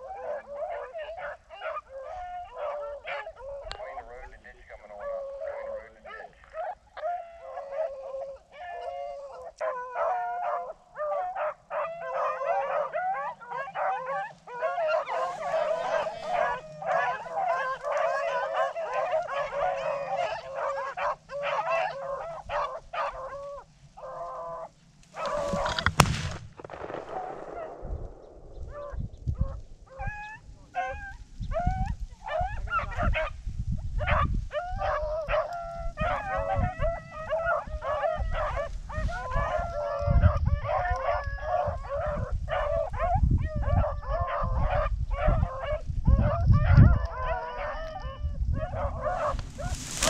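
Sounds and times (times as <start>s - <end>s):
hounds baying and yelping: 0.0s - 50.0s
sharp crack: 25.1s - 29.8s.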